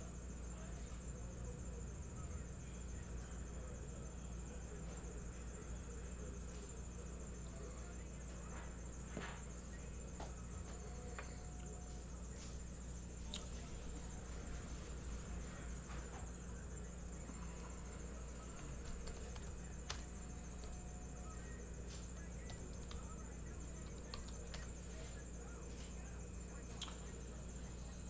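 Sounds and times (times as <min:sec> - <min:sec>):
low electrical hum: 0:00.0 - 0:28.0
faint clicks: 0:23.8 - 0:24.7, 0:26.7 - 0:27.1.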